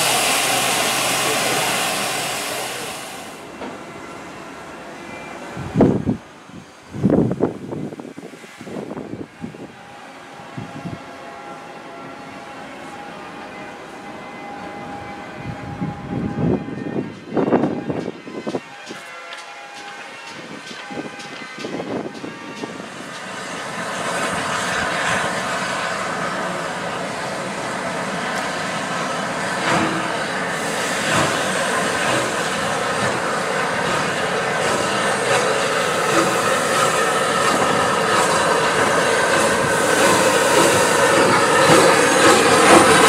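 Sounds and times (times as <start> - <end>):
steam hissing: 0.0 - 3.6, 22.6 - 43.0
train wheels clicking over rail joints: 18.0 - 25.7, 28.2 - 43.0.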